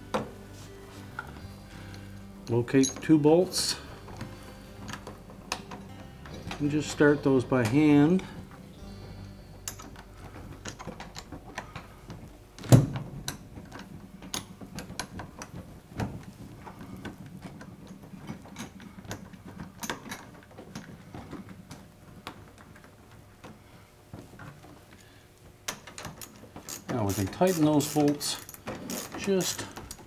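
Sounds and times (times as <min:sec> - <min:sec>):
bolts clicking in metal hinge: 0:02.5 - 0:08.4.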